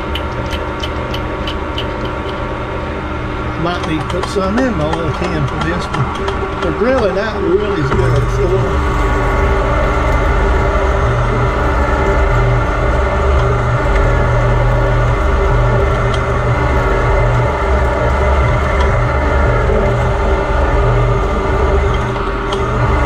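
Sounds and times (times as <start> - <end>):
metal lathe motor hum: 0.0 - 23.0.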